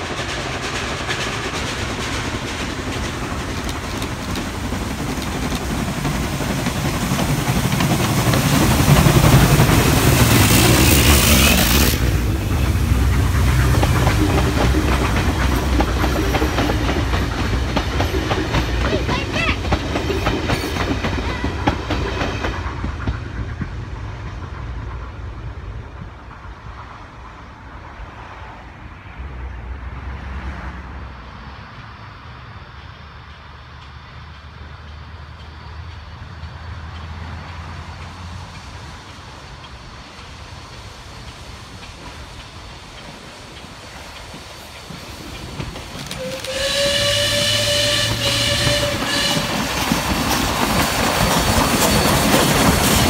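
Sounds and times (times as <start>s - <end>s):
carriage wheels clicking on rail joints: 0.0s - 23.9s, 33.8s - 47.5s
steam locomotive exhaust hissing: 0.0s - 29.2s, 31.0s - 53.0s.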